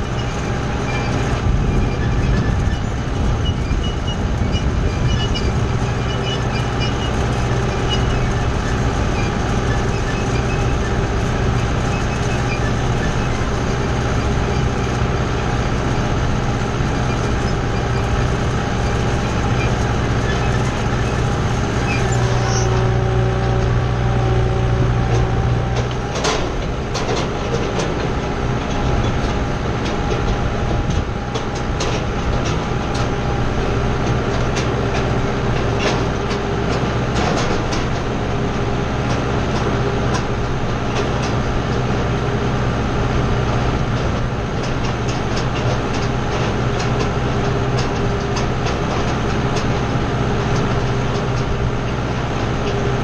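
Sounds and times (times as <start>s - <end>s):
tractor diesel engine running: 0.0s - 53.0s
clacks and rattles from rake: 25.1s - 53.0s.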